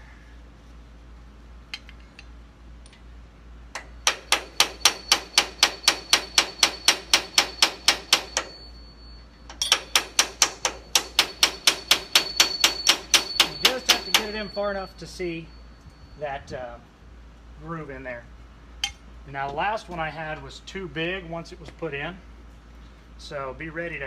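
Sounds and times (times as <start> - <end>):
hammer tapping metal: 3.8 - 8.7, 9.5 - 14.9.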